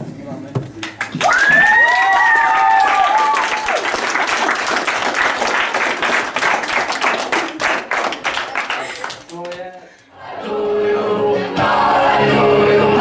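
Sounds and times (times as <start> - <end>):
children applauding: 0.8 - 9.8
high-pitched cheers: 1.2 - 4.0.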